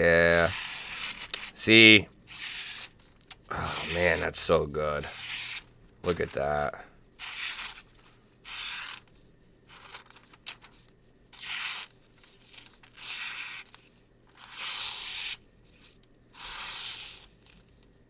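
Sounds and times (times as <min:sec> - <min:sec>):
knife slicing paper: 0:07.2 - 0:07.8, 0:08.5 - 0:09.0, 0:11.4 - 0:11.9, 0:12.6 - 0:13.8, 0:14.4 - 0:15.4, 0:16.4 - 0:17.3.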